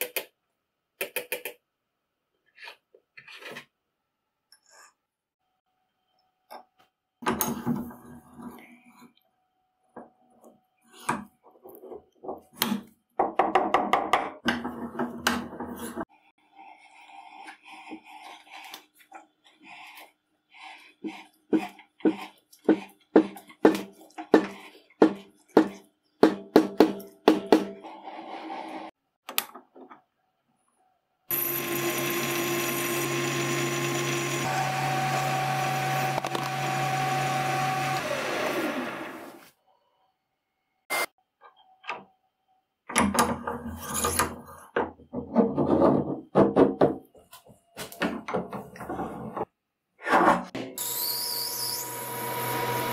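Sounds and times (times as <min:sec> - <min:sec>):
lathe tool cutting metal: 0:31.3 - 0:39.3, 0:50.8 - 0:52.9
metal lathe whining: 0:31.3 - 0:39.3, 0:50.8 - 0:52.9.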